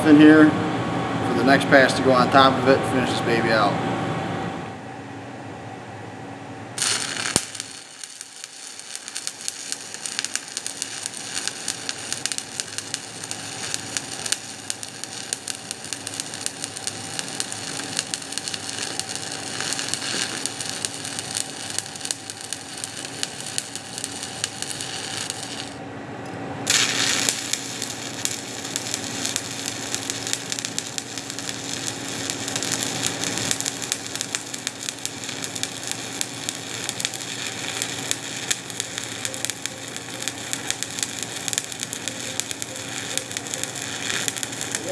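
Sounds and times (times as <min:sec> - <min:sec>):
welding arc crackling: 0:06.8 - 0:25.8, 0:26.7 - 0:44.9.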